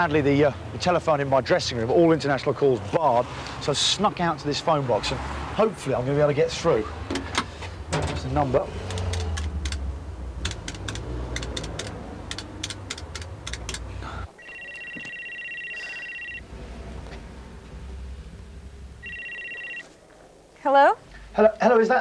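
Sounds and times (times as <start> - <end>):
keypad buttons clicking: 10.4 - 13.8
electronic telephone ringer warbling: 14.4 - 16.4, 19.0 - 19.9.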